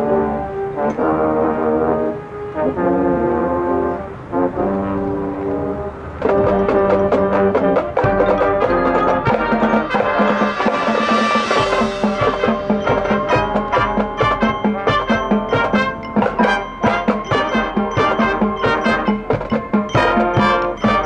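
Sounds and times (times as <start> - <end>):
marching band playing: 0.0 - 21.0
percussion strikes: 6.2 - 21.0.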